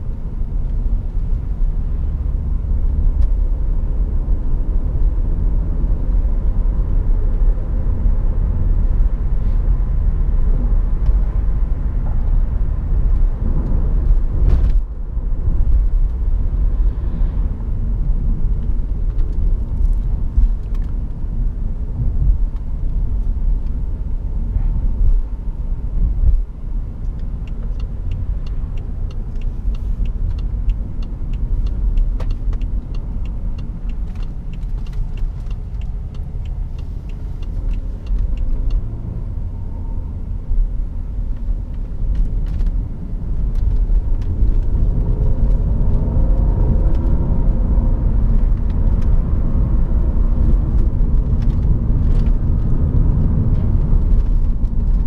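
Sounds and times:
car engine and tyres rumbling: 0.0 - 55.0
turn signal ticking: 21.9 - 55.0.

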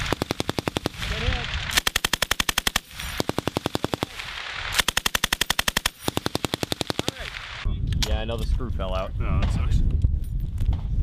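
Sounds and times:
machine gun firing bursts: 0.0 - 7.6.

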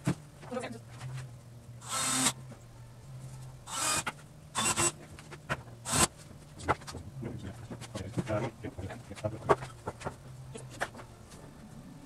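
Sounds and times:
cordless drill whirring: 1.8 - 2.4, 3.7 - 4.0, 4.6 - 5.0, 5.9 - 6.1.

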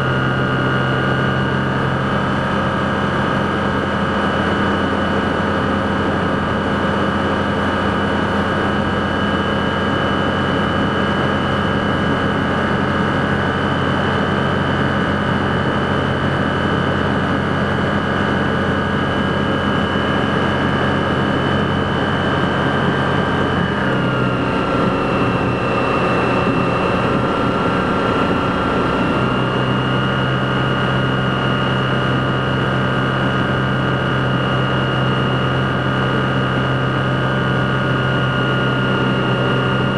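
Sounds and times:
propeller plane engine from cockpit: 0.0 - 39.9.

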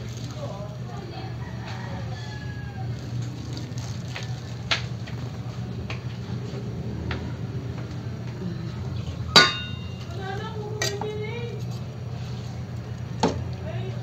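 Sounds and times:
steady low hum: 0.0 - 14.0
spoon striking metal pot: 9.4 - 10.1.

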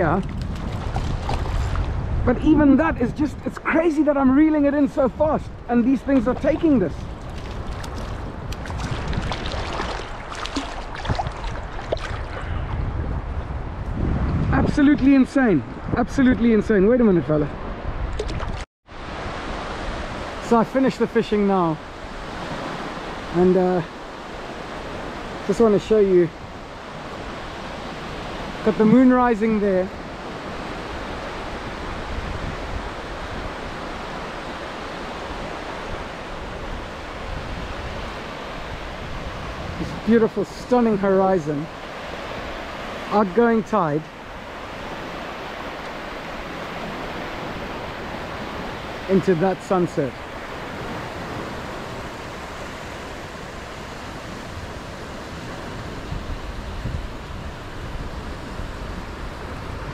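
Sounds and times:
small waves washing onto shore: 0.0 - 15.8, 17.5 - 59.9
low rumbling on microphone: 10.8 - 14.8.

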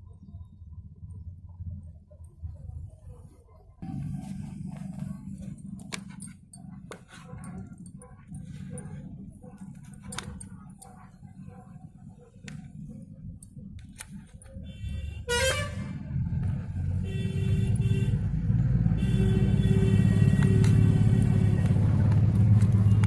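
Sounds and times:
engine rumble: 0.0 - 23.0
vehicle horn: 14.6 - 16.0, 16.9 - 22.1.

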